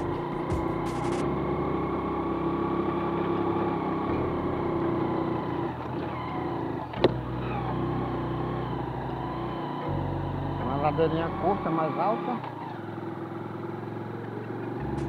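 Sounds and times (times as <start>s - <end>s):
sharp knock: 0.0s - 1.2s
motorcycle engine running: 0.0s - 15.0s.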